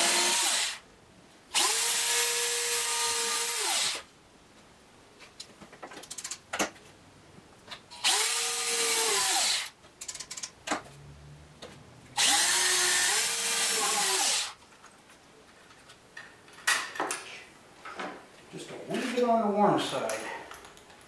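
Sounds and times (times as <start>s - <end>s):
electric drill drilling into wood: 0.0s - 0.8s, 1.6s - 4.0s, 8.0s - 9.7s, 12.2s - 14.6s.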